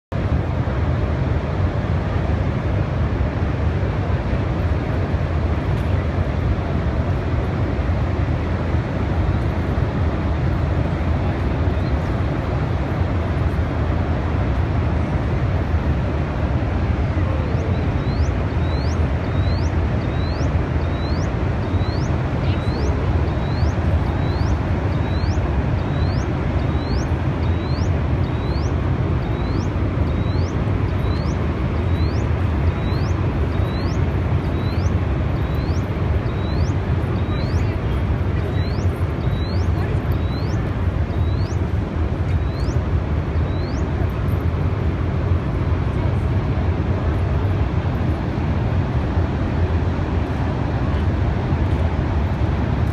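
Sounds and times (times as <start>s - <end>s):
floodwater roaring through spillway: 0.2s - 52.9s
high rising chirp: 17.6s - 34.0s.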